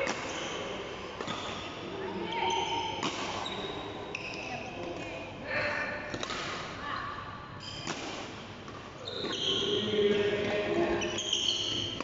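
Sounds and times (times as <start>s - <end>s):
court shoes squeaking: 0.0s - 5.1s, 7.6s - 12.0s
racket hitting shuttlecock: 3.0s - 3.4s, 6.1s - 6.8s, 7.8s - 9.0s.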